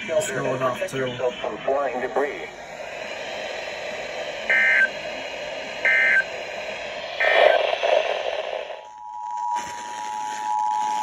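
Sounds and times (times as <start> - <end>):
rush of noise: 0.0 - 8.9
radio static hiss: 0.0 - 11.0
warbling digital data bursts: 4.5 - 5.0, 5.8 - 6.4.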